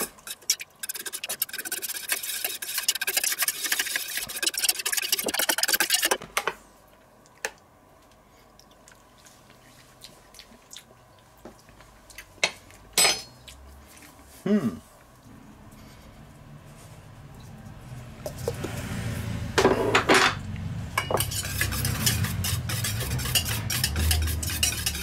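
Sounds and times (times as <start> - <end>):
whisk scraping metal bowl: 0.0 - 6.2, 21.1 - 25.0.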